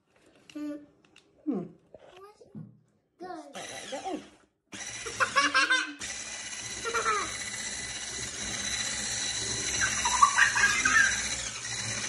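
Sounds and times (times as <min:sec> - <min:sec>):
electric hand mixer whining: 0:03.6 - 0:12.0.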